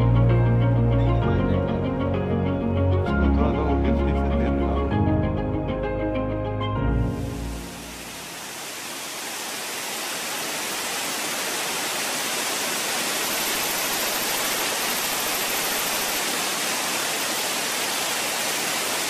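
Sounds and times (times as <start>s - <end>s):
waterfall roaring: 7.4s - 19.0s.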